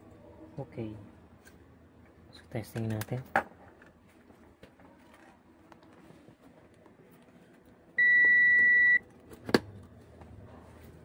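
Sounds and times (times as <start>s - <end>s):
electronic beep: 8.0s - 9.0s.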